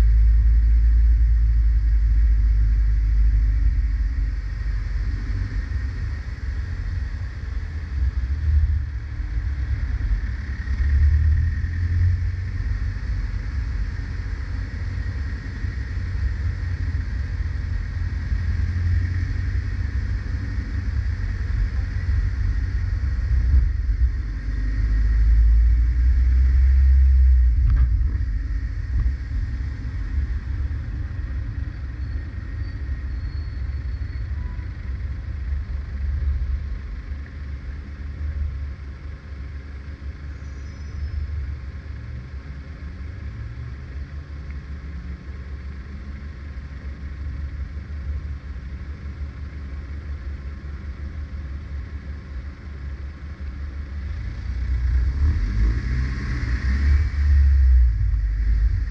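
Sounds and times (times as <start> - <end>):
car rumbling in traffic: 0.0 - 58.9
engine revving: 54.0 - 58.9.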